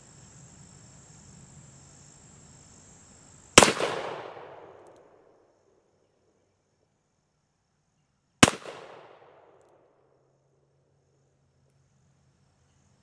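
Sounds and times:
cricket trill: 0.0 - 13.0
revolver gunshot echoing: 3.6 - 4.8, 8.4 - 9.4.

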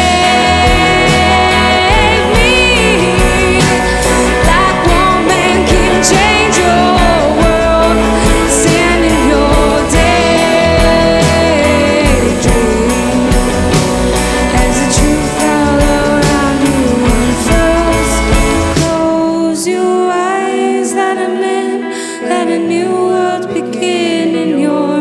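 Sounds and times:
upright double bass: 0.0 - 19.0
electric guitar: 0.0 - 25.0
woman singing: 0.0 - 25.0.

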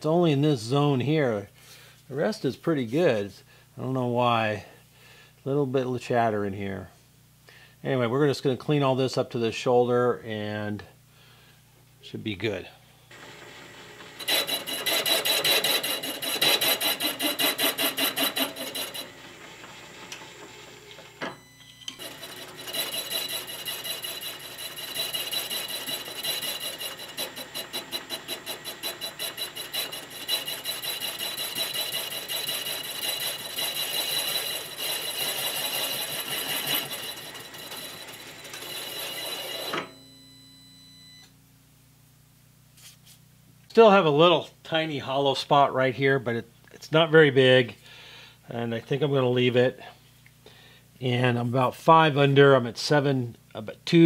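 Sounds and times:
milling machine cutting metal: 13.2 - 21.3, 22.0 - 39.9.

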